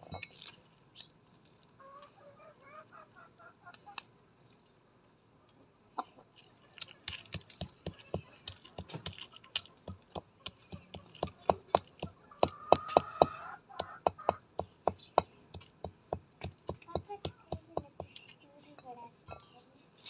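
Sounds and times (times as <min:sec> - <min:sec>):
chickens pecking on dirt: 0:00.2 - 0:04.2, 0:05.5 - 0:18.2
drawn-out chicken call: 0:12.2 - 0:14.4.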